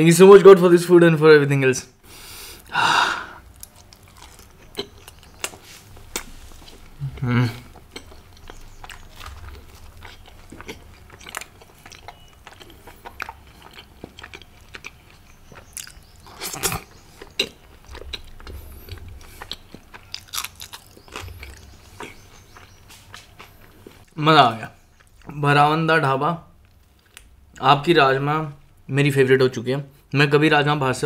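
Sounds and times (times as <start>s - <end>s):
close chewing with wet mouth clicks: 3.4s - 24.1s.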